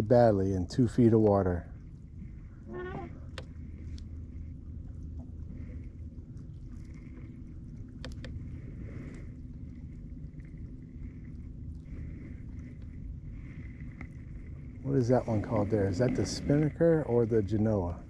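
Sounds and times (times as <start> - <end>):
boat motor humming: 0.0 - 18.0
light clicks: 8.0 - 8.4.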